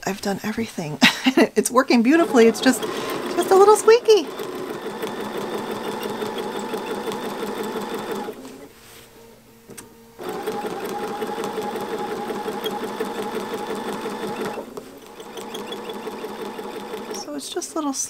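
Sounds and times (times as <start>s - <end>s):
sewing machine stitching: 2.0s - 8.7s, 10.2s - 17.8s.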